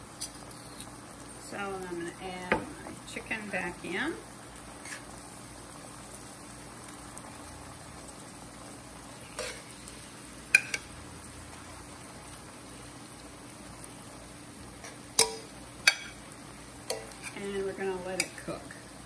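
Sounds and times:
sauce sizzling in skillet: 0.0s - 19.0s
metal tongs clacking: 15.2s - 16.2s.

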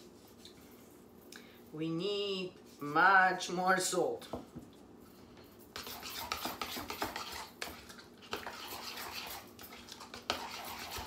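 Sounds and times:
utensil clinking and scraping bowl: 5.8s - 11.0s.

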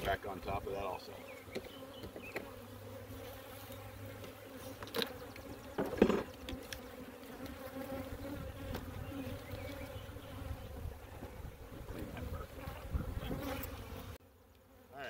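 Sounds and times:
bees buzzing: 0.0s - 15.0s.

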